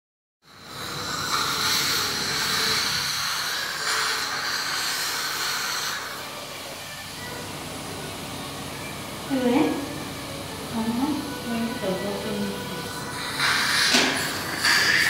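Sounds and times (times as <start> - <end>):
suction hose hissing: 0.5 - 6.9, 12.5 - 15.0.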